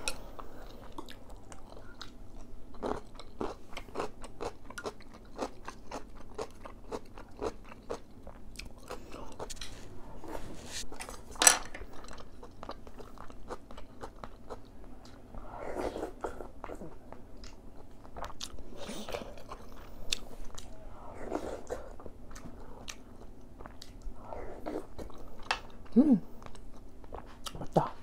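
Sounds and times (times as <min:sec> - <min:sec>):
wet chewing: 0:21.4 - 0:25.8.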